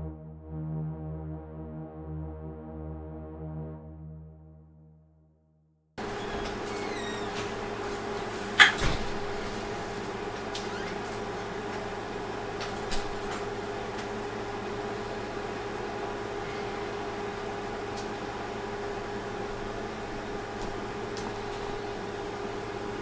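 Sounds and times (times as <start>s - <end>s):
steady hum with faint tone: 6.0s - 23.0s.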